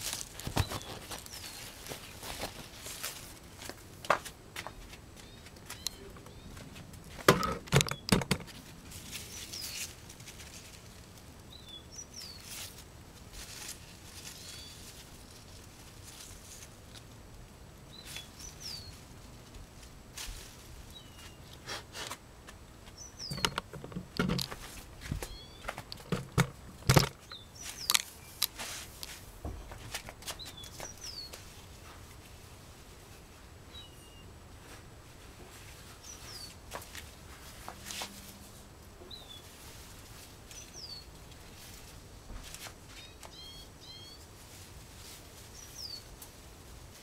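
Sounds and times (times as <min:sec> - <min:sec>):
canes and leaves rustling: 0:00.0 - 0:47.0
bird chirps: 0:05.2 - 0:06.6, 0:17.9 - 0:19.0, 0:23.0 - 0:23.6, 0:25.2 - 0:25.7, 0:43.0 - 0:44.2.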